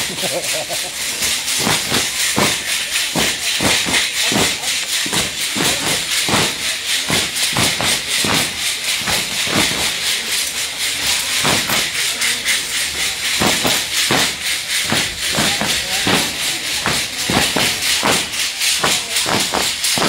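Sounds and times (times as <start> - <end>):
rattles jingling: 0.0 - 20.0.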